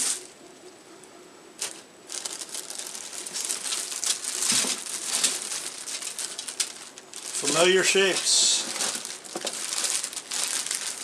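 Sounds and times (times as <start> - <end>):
plastic packaging crinkling: 1.6 - 11.0.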